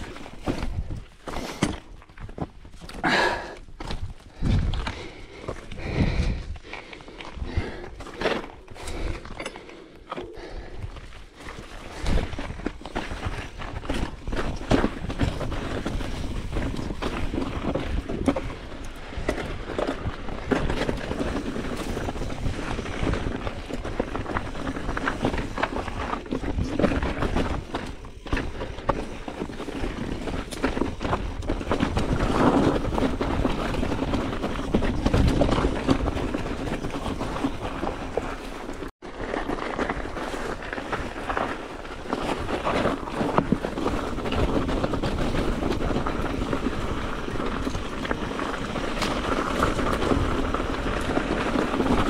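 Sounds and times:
bike rattling and clattering: 0.0 - 52.0
wheels knocking on rocks: 0.0 - 52.0
wind rumble on microphone: 3.9 - 6.7, 10.5 - 38.9.

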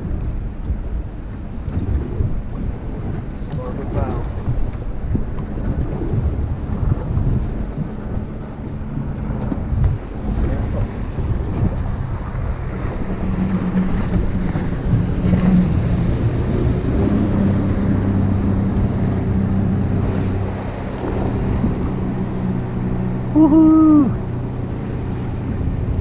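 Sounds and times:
boat engine hum: 0.0 - 26.0
ocean waves: 0.0 - 26.0
wind buffeting microphone: 0.0 - 26.0.

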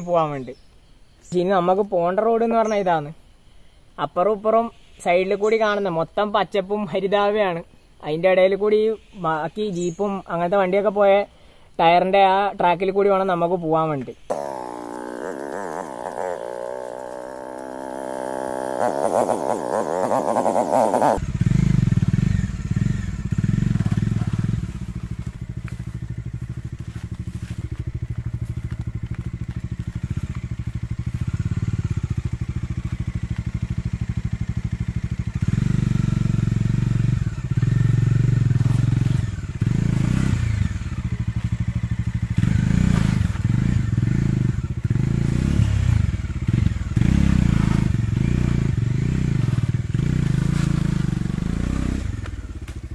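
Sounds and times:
motorcycle engine revving: 14.3 - 52.9.

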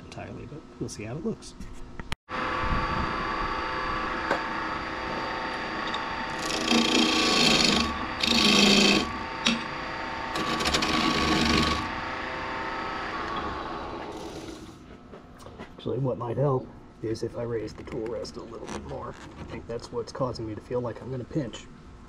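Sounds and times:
wood lathe humming: 2.3 - 14.8
chisel cutting spinning wood: 3.3 - 14.8.

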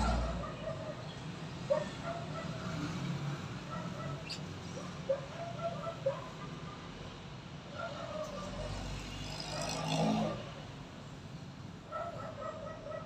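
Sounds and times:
motor vehicle passing: 8.4 - 10.7.

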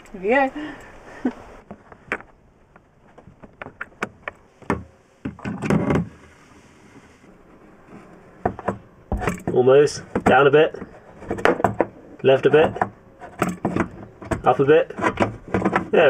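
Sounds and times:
plastic pipe knocking and scraping: 7.8 - 16.0.

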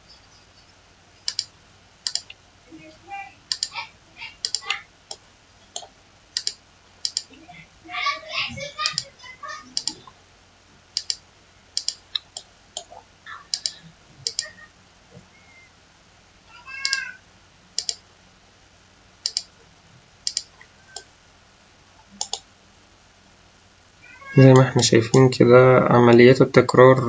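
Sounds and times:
computer mouse clicks: 1.2 - 2.4, 3.5 - 3.8, 4.4 - 7.3, 8.8 - 9.1, 9.7 - 10.1, 11.0 - 11.2, 11.8 - 14.5, 16.8 - 17.1, 17.8 - 18.0, 19.2 - 19.5, 20.3 - 21.1, 22.2 - 22.5.

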